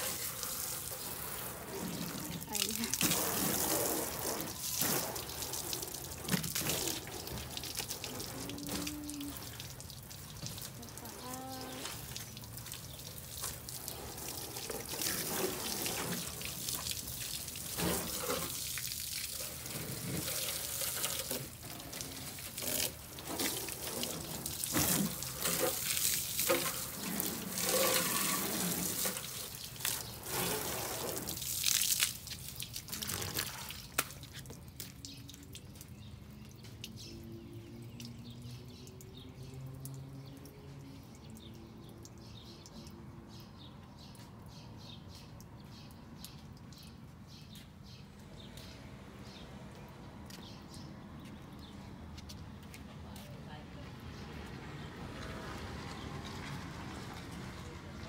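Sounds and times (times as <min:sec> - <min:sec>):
hose water spraying on car: 0:00.0 - 0:43.4.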